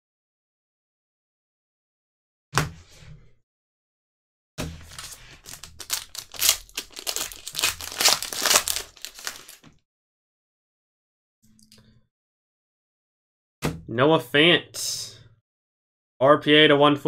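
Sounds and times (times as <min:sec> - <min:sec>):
foil wrapper crinkling and tearing: 0:04.8 - 0:09.7.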